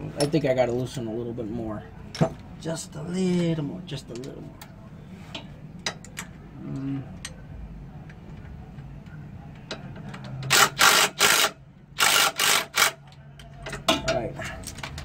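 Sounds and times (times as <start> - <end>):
ratchet wrench clicking: 10.5 - 13.0.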